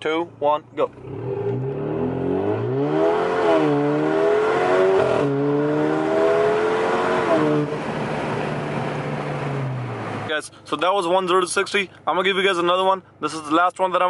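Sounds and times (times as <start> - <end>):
car engine accelerating hard: 0.9 - 10.3.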